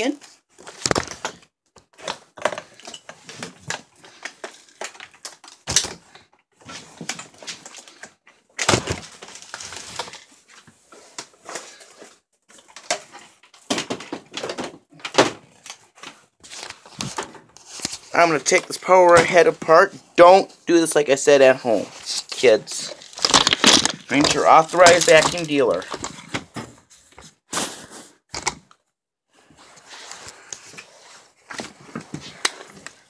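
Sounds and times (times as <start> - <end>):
handling noises: 0.6 - 20.1, 21.7 - 27.4.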